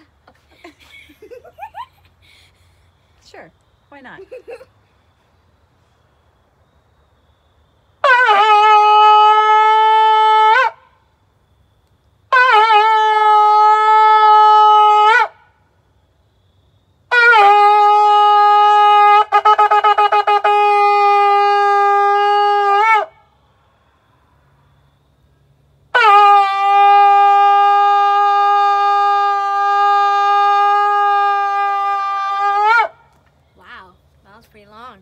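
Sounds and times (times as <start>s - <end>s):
shofar blasts: 8.0s - 10.9s, 12.3s - 15.4s, 17.1s - 23.2s, 25.9s - 33.1s.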